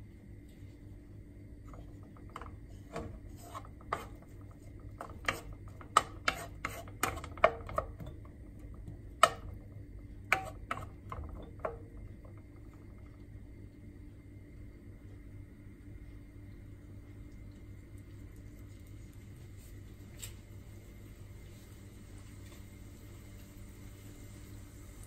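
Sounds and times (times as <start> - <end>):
wooden spatula scraping a wok: 1.7 - 8.0, 10.3 - 11.8.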